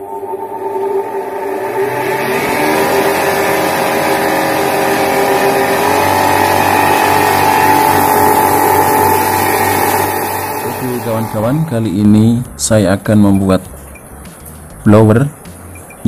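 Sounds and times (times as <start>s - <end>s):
electric blower whirring: 0.0s - 12.1s.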